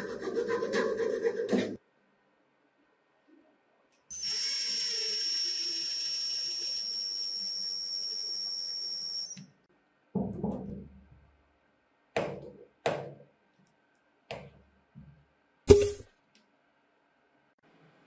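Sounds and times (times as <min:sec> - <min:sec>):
power drill whining: 0:04.1 - 0:09.4.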